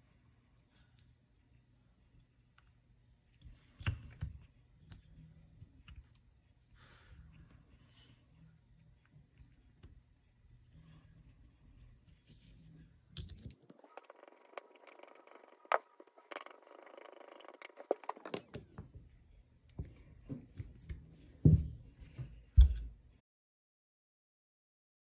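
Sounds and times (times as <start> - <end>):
metal parts clicking and scraping: 13.5 - 18.6
screwdriver turning screws: 13.6 - 18.6.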